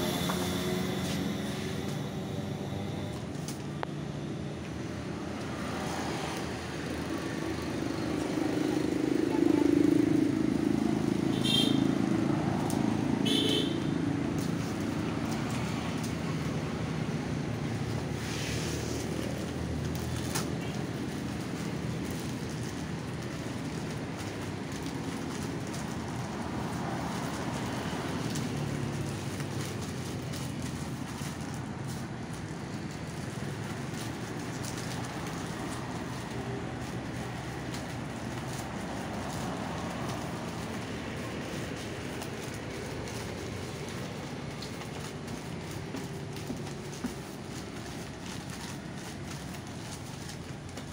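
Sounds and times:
short high tones: 0.0s - 3.4s
paper wrapping crackling and tearing: 0.0s - 3.7s, 14.2s - 50.9s
low engine hum: 0.0s - 11.3s
road traffic passing: 0.0s - 50.9s.

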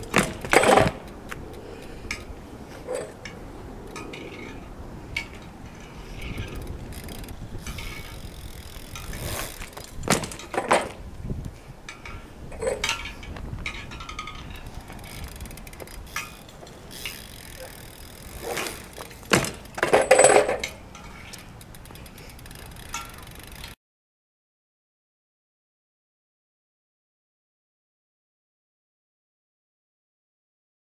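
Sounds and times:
bike metallic clatters: 0.0s - 11.1s, 11.8s - 23.8s
bike rolling on asphalt: 0.0s - 23.8s.

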